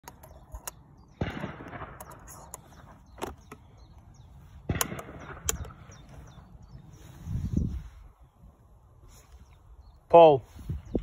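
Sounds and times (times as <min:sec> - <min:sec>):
cartridges loaded into shotgun: 0:00.0 - 0:03.6
shotgun action closing knock: 0:04.6 - 0:05.8.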